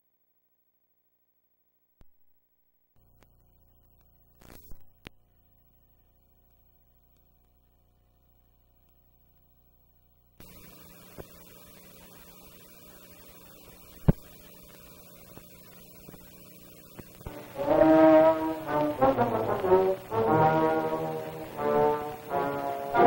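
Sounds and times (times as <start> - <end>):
film soundtrack hiss and hum: 0.1 - 23.0
loud brass theme music: 17.3 - 23.0.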